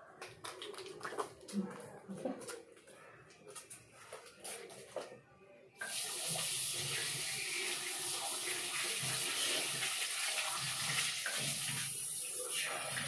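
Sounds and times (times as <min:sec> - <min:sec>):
tap water running into sink: 0:05.8 - 0:13.0.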